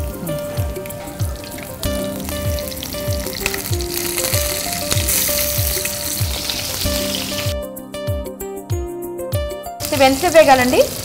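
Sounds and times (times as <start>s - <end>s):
oil sizzling in frying pan: 0.0s - 7.6s, 9.8s - 11.0s
background music with steady beat: 0.0s - 10.8s.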